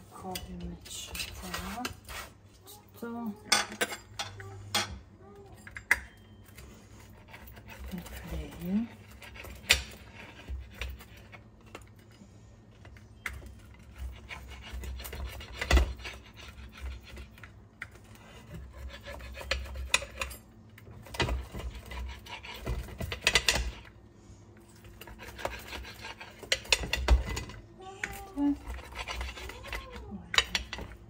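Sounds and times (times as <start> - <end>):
pizza cutter scraping a plate: 0.9 - 2.4, 13.7 - 20.4, 21.0 - 23.8, 24.8 - 27.5, 28.4 - 30.9.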